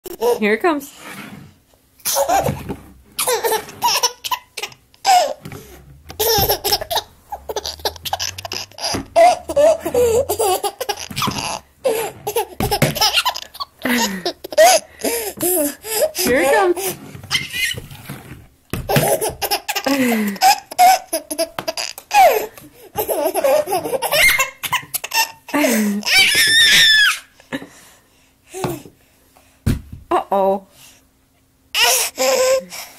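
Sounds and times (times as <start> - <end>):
toddler laughing: 2.0 - 17.8, 18.9 - 27.2.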